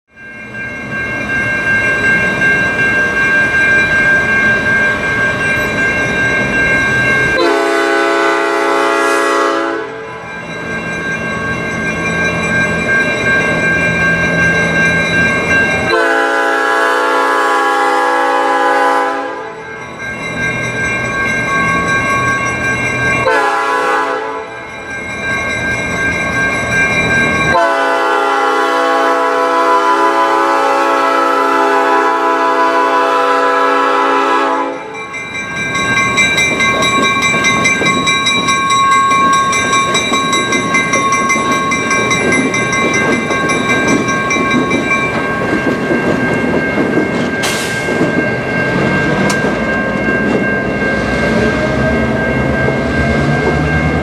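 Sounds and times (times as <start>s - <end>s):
locomotive bell ringing: 0.1s - 54.0s
locomotive air horn: 7.4s - 10.1s, 15.9s - 19.6s, 23.2s - 24.5s, 27.5s - 34.9s.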